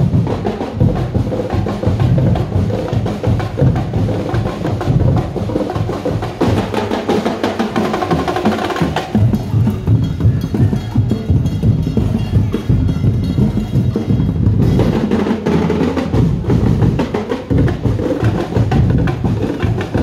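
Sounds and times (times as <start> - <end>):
drum ensemble playing fast rhythm: 0.0 - 20.0.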